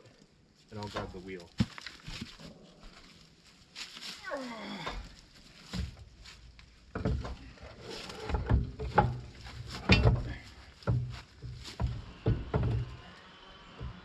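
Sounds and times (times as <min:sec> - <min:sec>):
heavy metal clunks and knocks: 0:06.9 - 0:07.6, 0:08.2 - 0:13.0.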